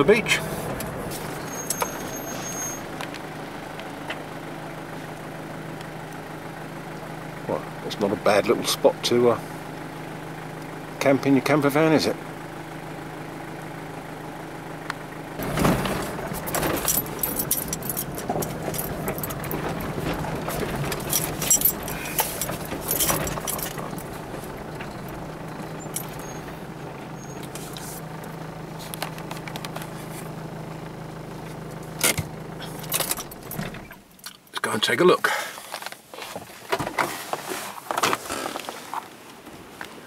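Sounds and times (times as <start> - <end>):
vehicle engine running: 0.0 - 39.8
loose things clinking and rattling: 15.4 - 26.6, 32.0 - 33.8.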